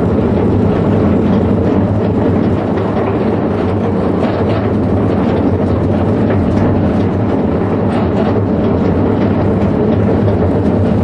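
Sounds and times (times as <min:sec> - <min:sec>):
rail wagons rumbling and rattling: 0:00.0 - 0:11.0.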